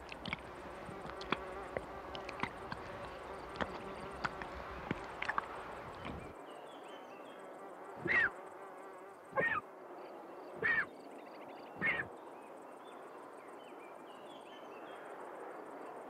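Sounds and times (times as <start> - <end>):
vulture chick begging cries: 8.0 - 8.3, 9.4 - 9.6, 10.6 - 10.9, 11.8 - 12.1.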